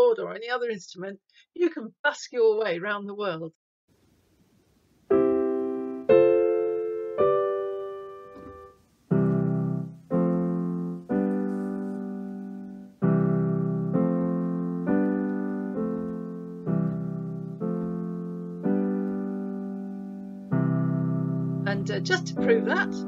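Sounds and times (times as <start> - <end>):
deep piano bass notes: 5.1 - 23.0
piano block chords: 5.1 - 23.0.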